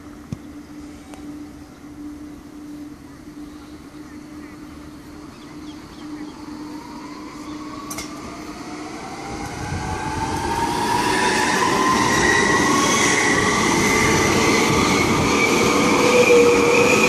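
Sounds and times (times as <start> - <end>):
traction motors whining: 0.4 - 17.0
train wheels rumbling on rails: 3.8 - 17.0.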